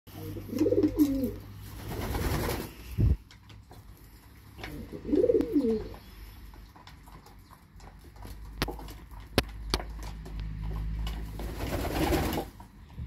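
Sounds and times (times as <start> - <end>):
pigeon cooing: 0.1 - 1.5, 4.6 - 6.1.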